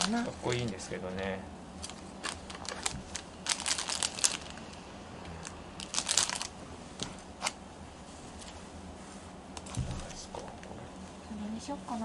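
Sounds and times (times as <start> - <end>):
crinkling and rustling materials: 0.0 - 7.6.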